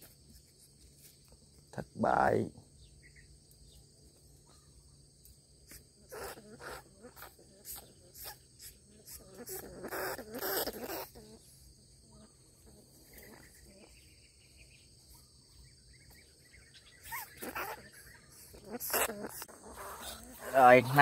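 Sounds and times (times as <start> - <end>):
rat squealing: 5.7 - 11.4, 16.9 - 21.0.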